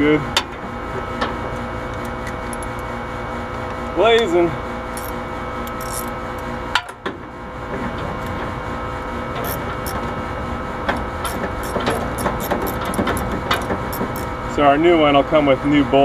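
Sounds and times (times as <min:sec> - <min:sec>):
steady mechanical hum: 0:00.0 - 0:16.0
ratchet clicking: 0:04.9 - 0:06.5, 0:09.4 - 0:10.0, 0:10.9 - 0:14.3.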